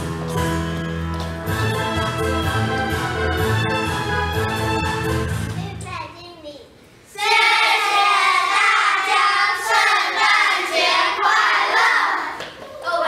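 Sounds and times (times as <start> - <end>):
children singing together: 7.2 - 13.0.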